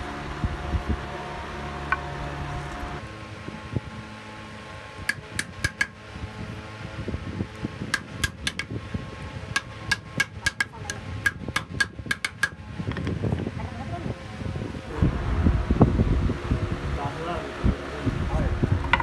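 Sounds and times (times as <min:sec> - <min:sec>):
hammer tapping on wood: 0:05.1 - 0:05.9, 0:07.9 - 0:08.7, 0:09.5 - 0:12.6.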